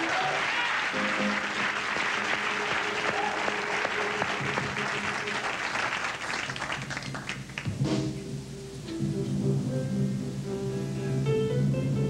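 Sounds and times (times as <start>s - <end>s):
band music playing: 0.0s - 6.0s, 7.1s - 12.0s
audience applauding: 0.0s - 7.8s.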